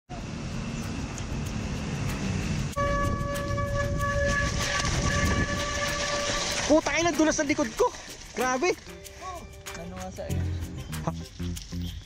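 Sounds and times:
bike rolling on wet trail: 0:04.2 - 0:08.9.

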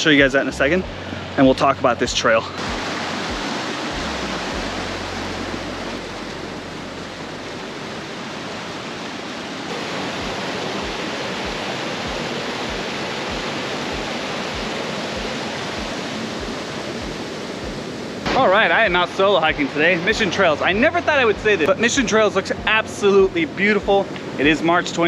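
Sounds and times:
creek rushing over rocks: 0:00.0 - 0:25.0.

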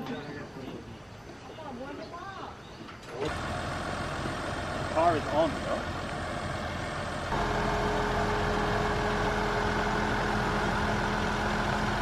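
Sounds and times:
vehicle engine idling: 0:03.2 - 0:12.0.

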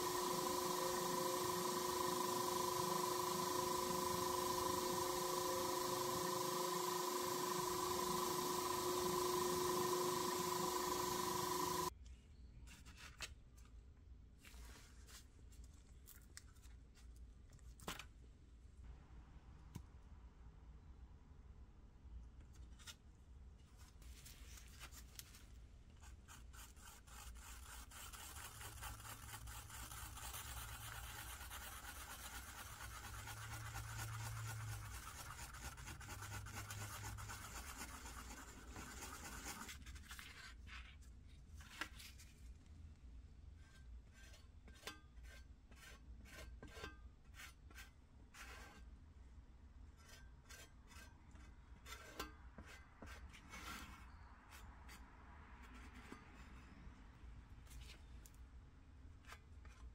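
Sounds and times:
stick stirring and scraping epoxy: 0:00.0 - 0:11.9, 0:26.0 - 0:41.0, 0:43.6 - 0:49.0, 0:49.9 - 0:55.0
spreader scraping filler on metal: 0:43.6 - 0:48.9, 0:50.0 - 0:56.9.

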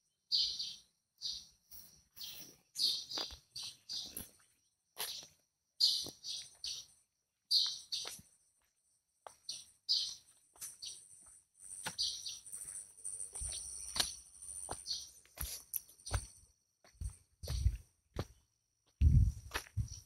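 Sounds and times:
birds chirping: 0:00.2 - 0:08.2, 0:09.3 - 0:16.4.

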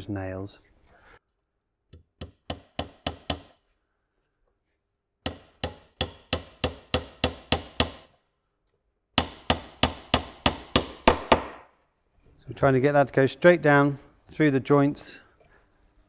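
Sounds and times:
hammer tapping nail into wood: 0:01.9 - 0:03.6, 0:05.2 - 0:08.1, 0:09.2 - 0:11.7.

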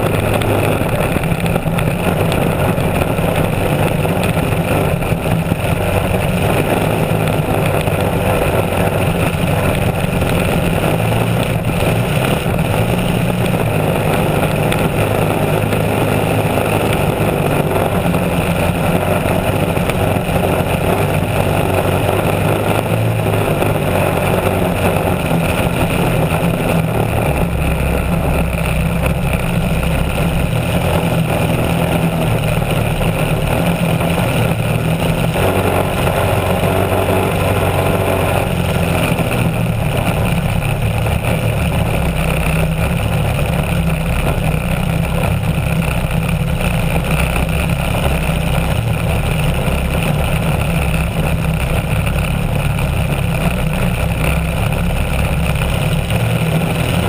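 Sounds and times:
boat engine running: 0:00.0 - 0:57.0.

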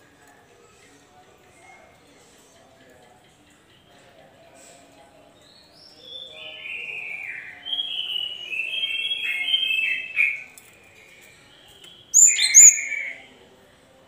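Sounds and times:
bird whistled calls: 0:06.1 - 0:10.4, 0:12.1 - 0:13.2.

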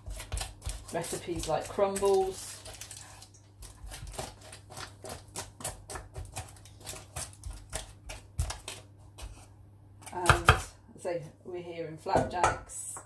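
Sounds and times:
baking parchment crackling and rustling: 0:00.0 - 0:09.5.

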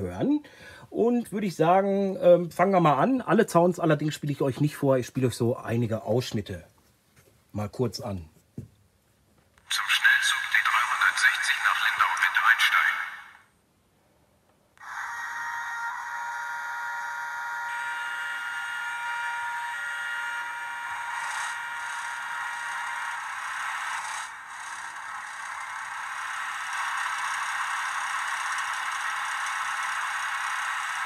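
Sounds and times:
model locomotive engine sound: 0:14.8 - 0:31.0.

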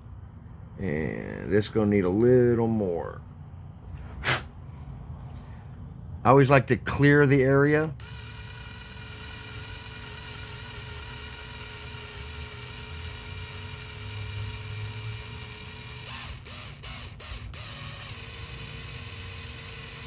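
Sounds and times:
electric drill drilling metal: 0:08.0 - 0:20.0.

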